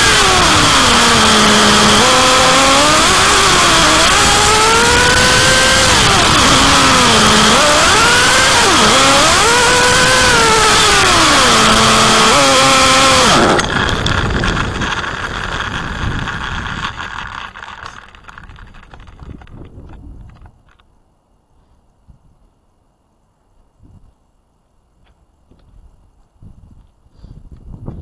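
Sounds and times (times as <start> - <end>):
small engine revving: 0.0 - 19.9
toy car rolling rattle: 0.0 - 20.9.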